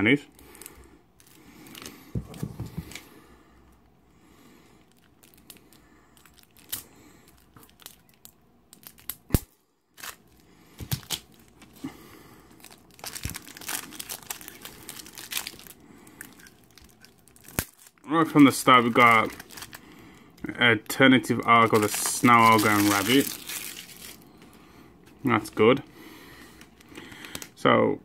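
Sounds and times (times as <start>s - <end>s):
foil pack crinkling and tearing: 4.9s - 11.8s, 12.5s - 24.3s.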